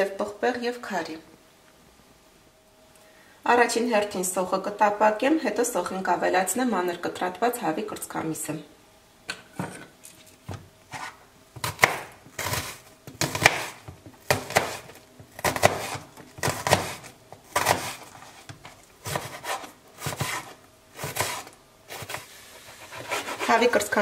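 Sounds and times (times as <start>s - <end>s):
knife chopping onion on board: 10.9s - 18.1s, 19.0s - 22.2s.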